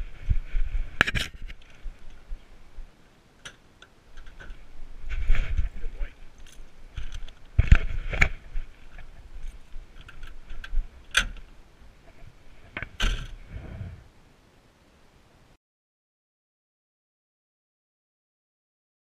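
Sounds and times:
camera handling knocks and rustles: 7.0 - 9.2.

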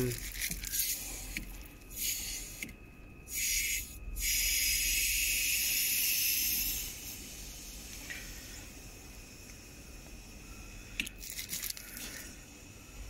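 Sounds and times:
aerosol spray hissing: 3.3 - 8.4.

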